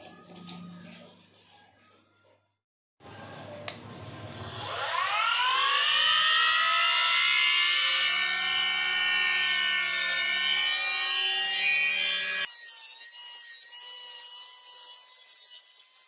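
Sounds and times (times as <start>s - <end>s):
bench grinder motor whine: 4.2s - 16.0s
steel screw grinding on wheel: 12.4s - 16.0s.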